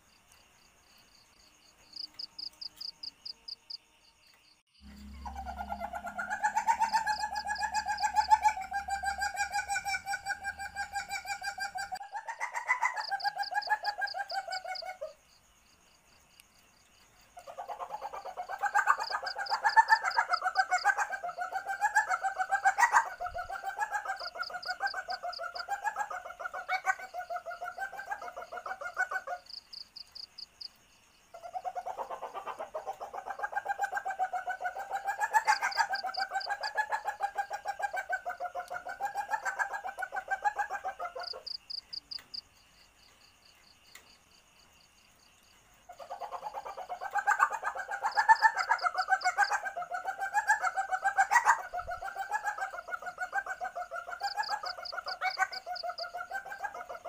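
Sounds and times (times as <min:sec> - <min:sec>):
faint high-pitched chirping: 0:00.0 - 0:57.0
civet pulsing mating call: 0:04.8 - 0:15.1.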